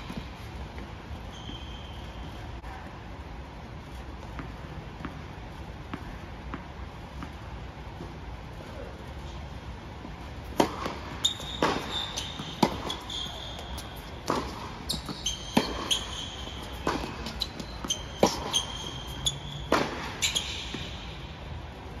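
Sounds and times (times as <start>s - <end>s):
ball bouncing on court: 0.0s - 3.0s, 4.2s - 8.2s, 10.0s - 21.4s
sneakers squeaking on court: 0.0s - 8.2s, 10.0s - 21.6s
racket striking tennis ball: 10.4s - 21.3s.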